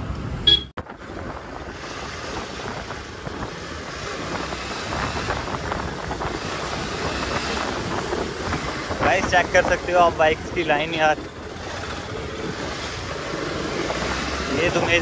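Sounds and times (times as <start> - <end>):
motorcycle engine: 0.0 - 15.0
road noise: 0.0 - 15.0
wind buffeting microphone: 0.0 - 15.0.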